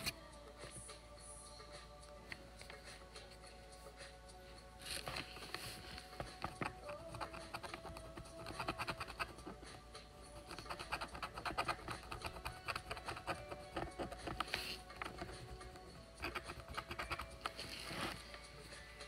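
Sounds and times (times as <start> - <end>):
stylus scratching a board: 5.4 - 18.2.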